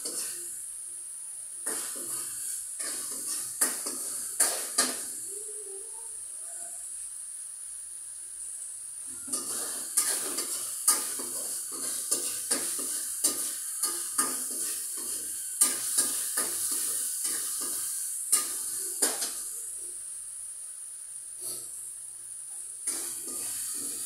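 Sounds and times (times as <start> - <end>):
spatula scraping a pan: 0.0 - 0.5, 1.6 - 5.2, 9.1 - 19.4, 22.8 - 24.0
food sizzling: 0.0 - 24.0.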